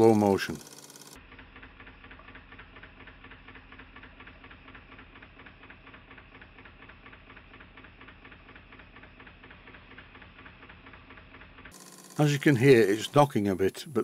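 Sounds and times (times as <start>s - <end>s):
toy steam engine knocking: 0.0s - 13.6s.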